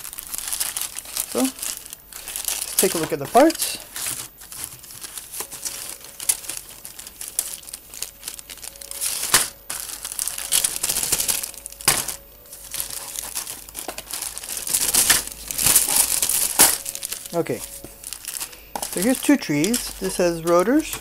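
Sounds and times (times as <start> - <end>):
plastic bag crinkling: 0.0 - 21.0.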